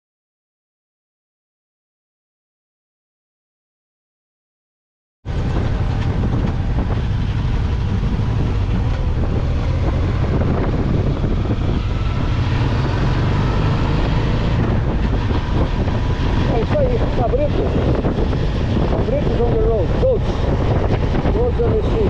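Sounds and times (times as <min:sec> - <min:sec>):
motorcycle engine running: 0:05.3 - 0:22.0
road noise: 0:05.3 - 0:22.0
wind rushing over microphone: 0:05.3 - 0:22.0.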